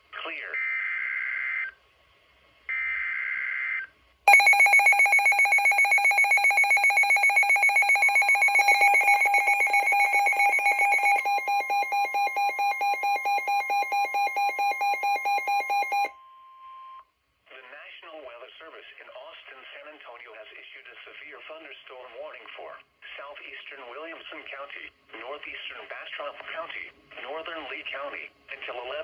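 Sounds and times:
rapid electronic alarm beeps: 4.3 - 16.1
steady warning tone: 4.3 - 16.1.

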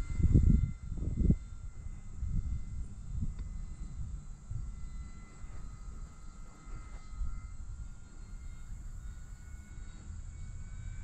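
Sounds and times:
distant model plane motor whine: 0.0 - 11.0
wind buffeting microphone: 0.0 - 11.0.

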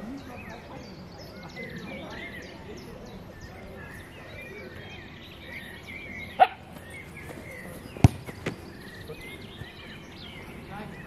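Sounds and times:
birds singing: 0.0 - 11.0
ball caught thud: 7.9 - 8.8
football kicked hard: 7.9 - 8.8.

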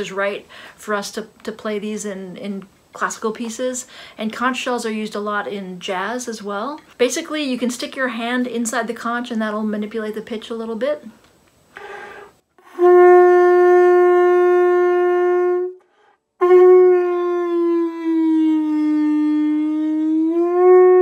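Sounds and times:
conch shell trumpet notes: 11.8 - 21.0.

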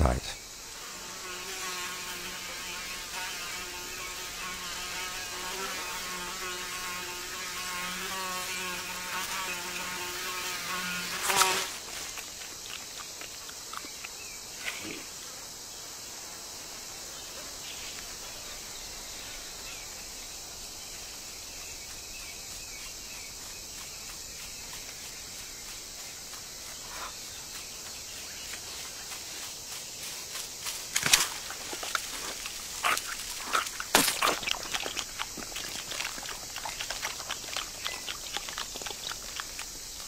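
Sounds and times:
steady ambient hiss: 0.0 - 1.2
flying insect buzzing: 0.0 - 40.0.

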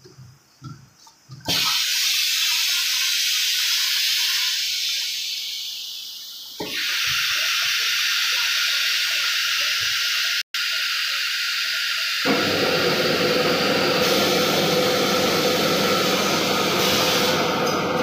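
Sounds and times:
compressed air hissing: 1.5 - 7.6, 14.0 - 17.5.

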